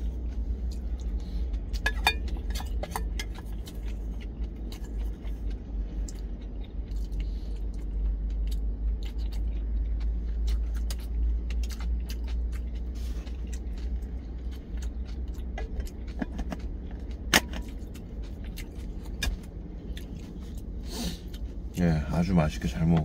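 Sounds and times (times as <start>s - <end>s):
spoon clinking in metal bowl: 1.8s - 2.2s.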